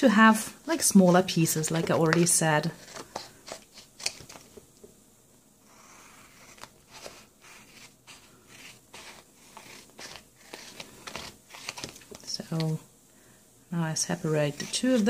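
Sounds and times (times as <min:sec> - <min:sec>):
paper rustling: 0:01.0 - 0:04.6, 0:06.1 - 0:12.8.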